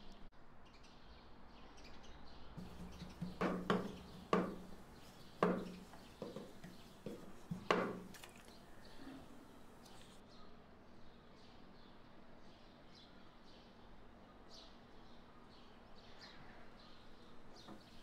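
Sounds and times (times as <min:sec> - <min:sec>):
rolling pin rolling dough: 0:02.6 - 0:08.2.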